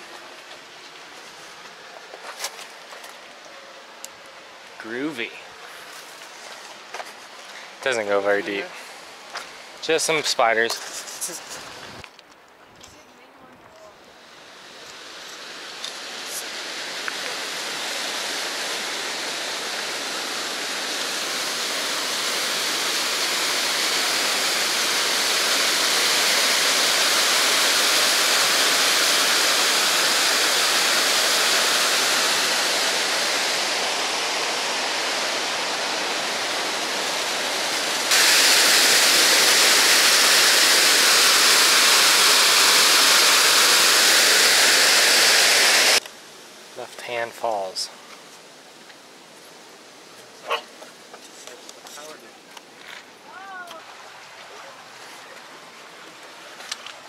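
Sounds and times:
waterfall rushing: 14.2 - 46.0.

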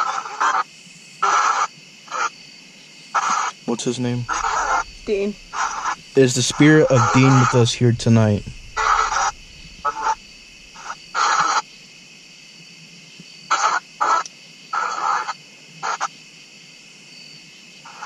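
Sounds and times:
steady hiss: 2.6 - 13.2
choppy bursts of radio static: 3.8 - 10.9.

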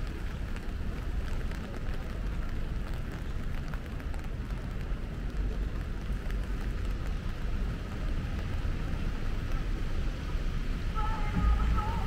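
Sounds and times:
low rumble of passing traffic: 0.0 - 12.0
rain hiss on wet street: 0.0 - 12.0.

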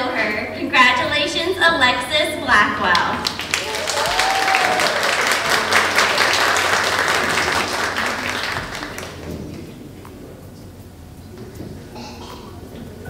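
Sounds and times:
audience applauding: 3.0 - 9.8.

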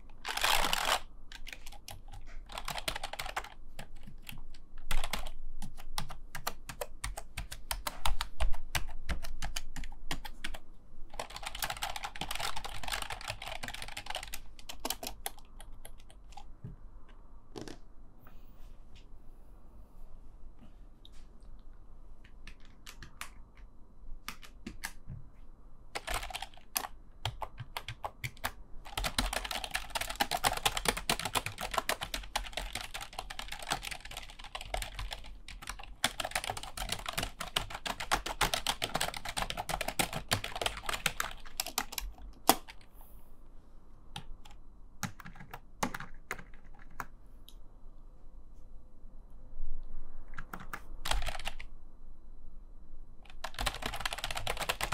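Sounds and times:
keyboard typing: 0.0 - 16.6, 22.2 - 25.1, 25.9 - 42.9, 44.2 - 47.1, 50.3 - 51.7, 53.2 - 54.9.

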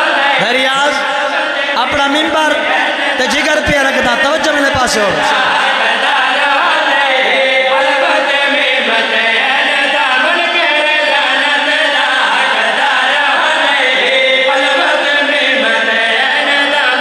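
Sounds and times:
men singing a devotional chant: 0.0 - 17.0.

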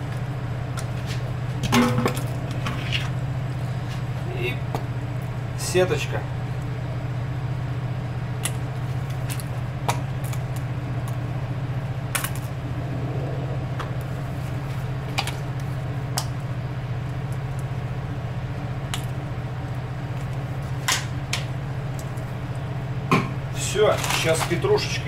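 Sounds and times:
ship machinery hum: 0.0 - 23.7.

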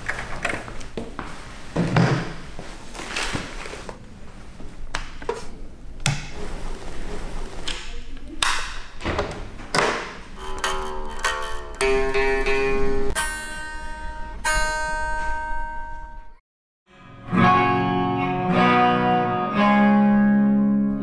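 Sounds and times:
electric guitar picked notes: 10.4 - 21.0.

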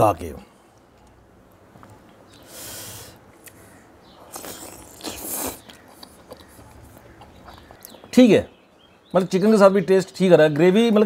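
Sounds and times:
wet slurping and sucking: 4.2 - 6.2.

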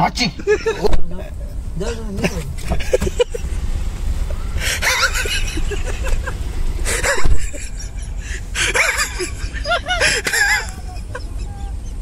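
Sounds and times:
car rumble: 0.0 - 12.0
person laughing: 2.2 - 3.5, 4.6 - 12.0.

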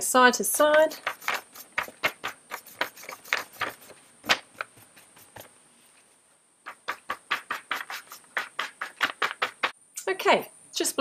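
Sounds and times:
paintbrush scraping on paper: 0.5 - 5.5, 6.7 - 9.8.

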